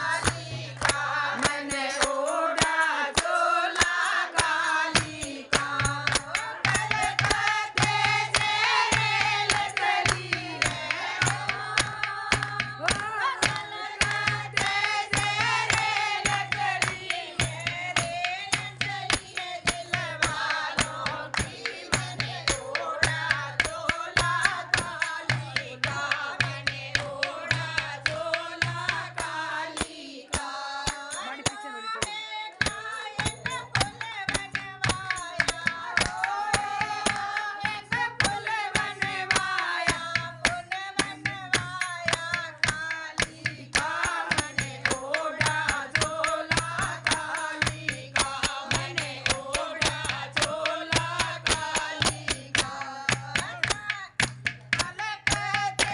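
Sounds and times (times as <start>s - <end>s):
rhythmic hand clapping: 0.0s - 55.9s
women singing devotional song: 0.0s - 55.9s.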